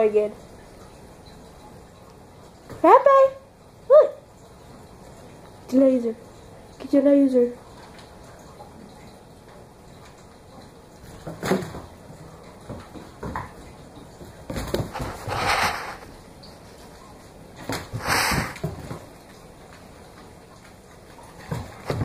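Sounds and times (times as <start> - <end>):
puppy paws scrabbling on wooden floor: 14.5 - 16.1.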